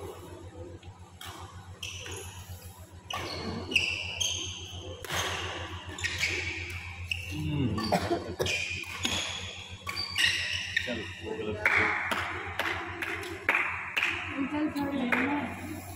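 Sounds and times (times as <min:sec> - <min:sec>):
shoes squeaking on court: 0:01.2 - 0:11.2
racket hitting shuttlecock: 0:03.1 - 0:07.2, 0:08.5 - 0:10.9, 0:11.6 - 0:14.3.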